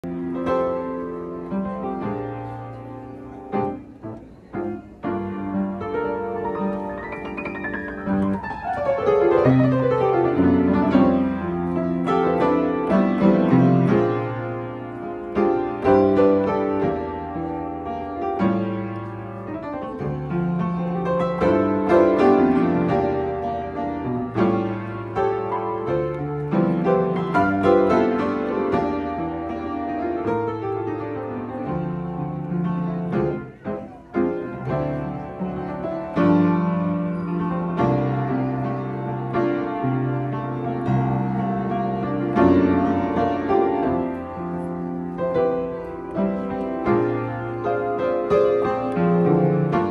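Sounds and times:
solo piano: 0:00.0 - 0:49.9.

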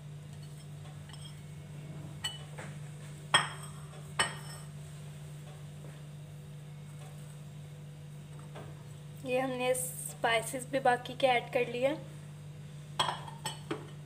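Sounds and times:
glass bowl clinking against dish: 0:13.0 - 0:13.9.

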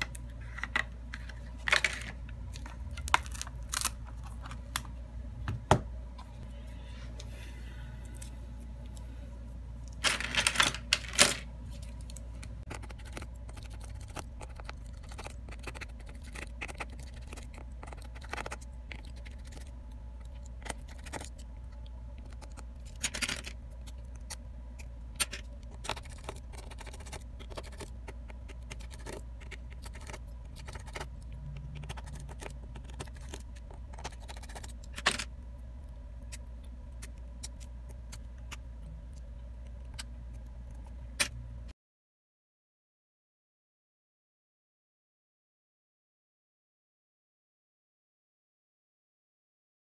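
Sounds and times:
rattling of phone parts: 0:00.0 - 0:04.8, 0:09.9 - 0:12.9, 0:22.8 - 0:23.6, 0:31.8 - 0:35.3
steady low hum: 0:00.0 - 0:41.8.

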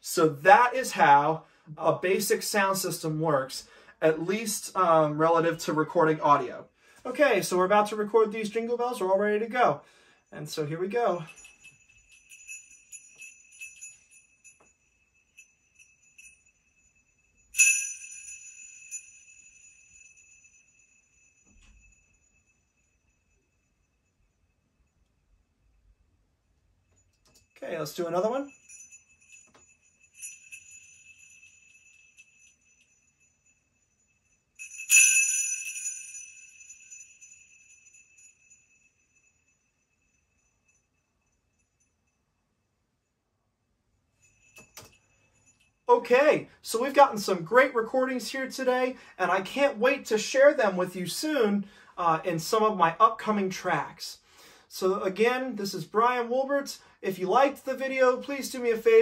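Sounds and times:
sleigh bells jingling: 0:10.4 - 0:24.8, 0:27.2 - 0:42.4, 0:44.2 - 0:59.0.

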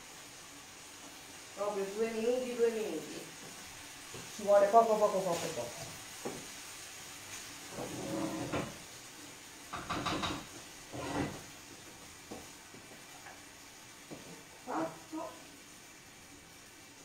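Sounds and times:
faint hiss from pans: 0:00.0 - 0:17.0
pots and lids clanking: 0:09.7 - 0:11.4.

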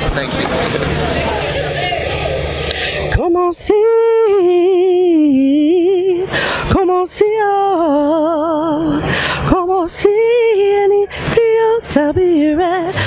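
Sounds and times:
quick breaths: 0:02.7 - 0:03.1, 0:06.3 - 0:06.7, 0:09.0 - 0:09.5.

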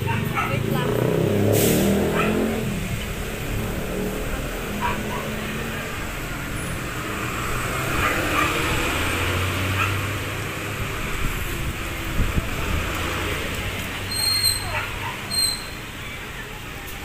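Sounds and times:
engine humming low: 0:00.0 - 0:17.0
street traffic: 0:00.0 - 0:17.0.

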